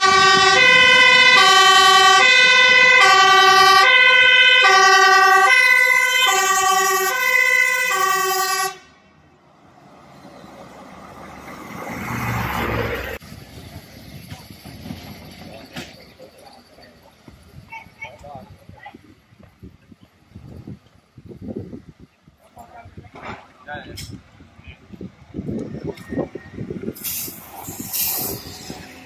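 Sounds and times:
fire engine two-tone siren: 0:00.0 - 0:09.0
fire truck rumble: 0:00.0 - 0:29.0.

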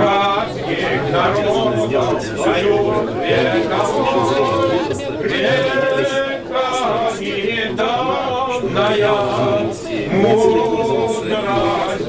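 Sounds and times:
voices singing unaccompanied: 0:00.0 - 0:12.0.

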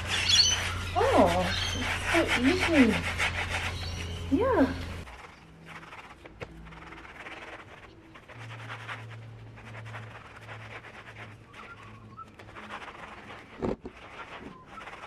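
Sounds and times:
sponge scrubbing wet tile: 0:00.0 - 0:15.0.

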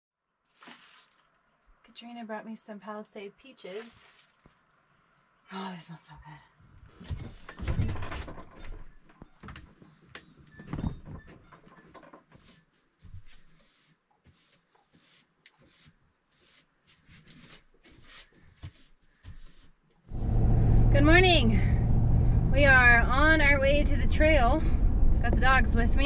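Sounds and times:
hand brush sweeping floor: 0:12.4 - 0:19.8.

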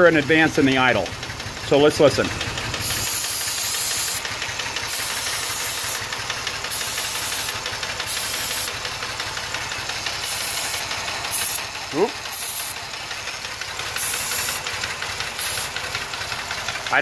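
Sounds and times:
engine idling with valve tap: 0:00.0 - 0:17.0
aerosol can hissing: 0:02.7 - 0:08.9, 0:09.9 - 0:13.0, 0:13.8 - 0:16.0.

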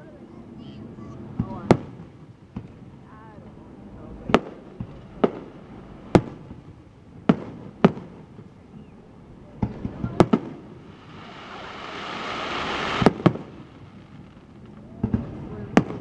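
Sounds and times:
fireworks booming: 0:04.2 - 0:16.0.

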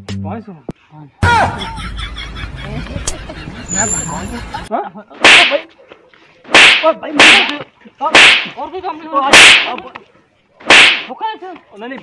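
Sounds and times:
loud sharp slaps: 0:05.2 - 0:05.7, 0:06.5 - 0:08.6, 0:09.3 - 0:09.9, 0:10.6 - 0:11.2.

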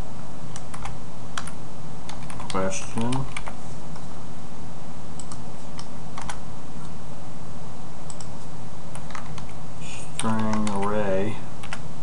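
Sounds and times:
steady low hum: 0:00.0 - 0:12.0
keyboard typing: 0:00.5 - 0:04.0, 0:05.2 - 0:06.4, 0:08.9 - 0:09.6, 0:10.2 - 0:11.0.

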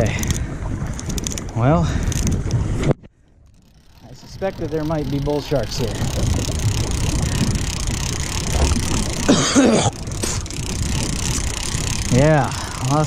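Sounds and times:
fishing reel cranking: 0:00.0 - 0:02.5, 0:03.4 - 0:13.0
wind rushing on microphone: 0:00.0 - 0:13.0
cough-like grunt: 0:09.3 - 0:10.0.

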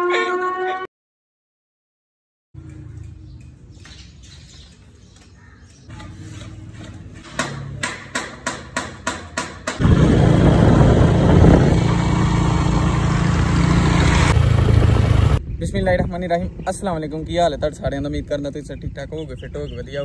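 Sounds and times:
sharp knocks: 0:07.3 - 0:09.8
wind on microphone: 0:09.8 - 0:13.1
engine running low: 0:09.8 - 0:15.4
motorcycle riding: 0:09.8 - 0:15.4.

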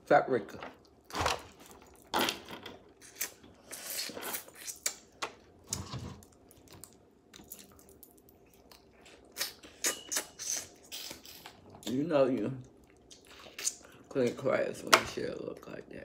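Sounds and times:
wet chewing clicks and smacks: 0:06.4 - 0:12.0.

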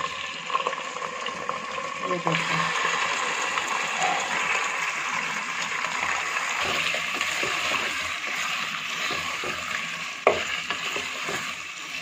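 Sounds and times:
chicken sizzling in hot oil: 0:00.0 - 0:12.0
wooden spoon knocking on pot: 0:09.0 - 0:11.4.

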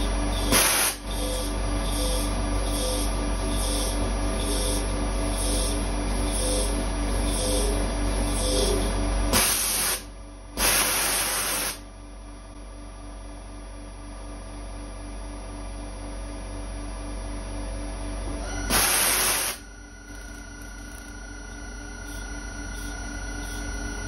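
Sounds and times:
mill spindle humming: 0:00.0 - 0:14.2, 0:15.1 - 0:24.0
loud hissing bursts: 0:00.5 - 0:01.0, 0:09.3 - 0:11.8, 0:18.7 - 0:19.6.

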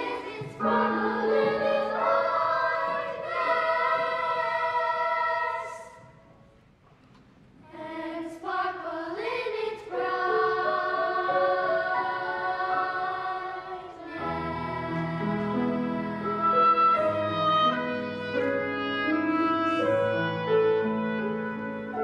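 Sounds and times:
low piano notes: 0:00.0 - 0:04.5
girls' choir singing chords: 0:00.0 - 0:06.2, 0:07.6 - 0:17.8.

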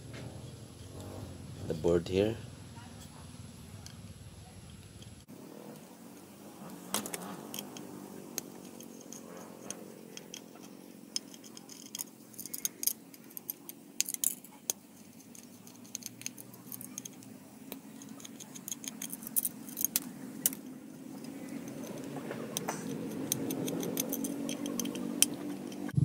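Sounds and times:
steady low hum: 0:00.0 - 0:26.0
screwdriver clicking on metal: 0:07.0 - 0:20.6, 0:21.2 - 0:26.0.

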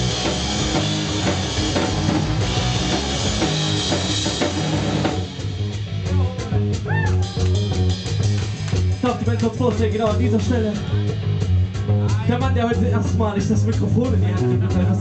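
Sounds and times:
drum kit with crashing cymbals: 0:00.0 - 0:09.2
bass and electric guitars: 0:00.0 - 0:15.0.

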